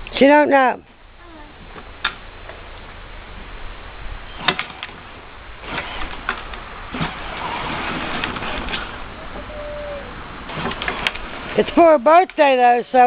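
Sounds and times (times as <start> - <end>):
sharp clicks and knocks: 4.4 - 5.0.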